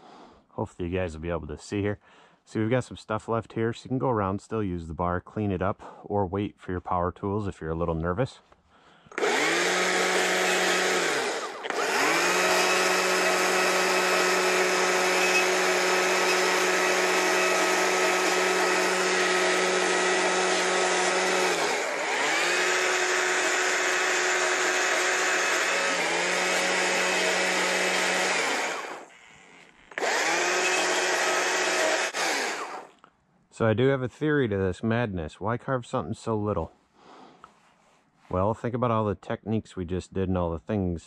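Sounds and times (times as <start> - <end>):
battery chainsaw whining: 9.1 - 33.0.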